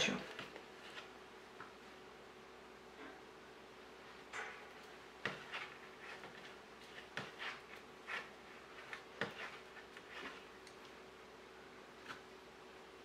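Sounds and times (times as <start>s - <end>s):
yarn rubbing: 5.3s - 10.8s.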